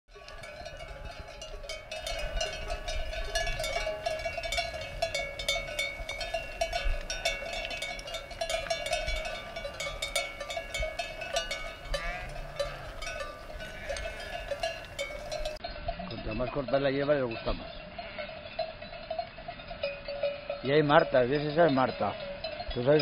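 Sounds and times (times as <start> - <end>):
sheep bells clanking: 0.1 - 23.0.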